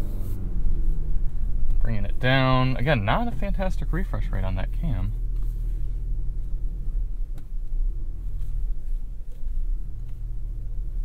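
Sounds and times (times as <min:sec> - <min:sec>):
vehicle engine rumble in cabin: 0:00.0 - 0:11.0.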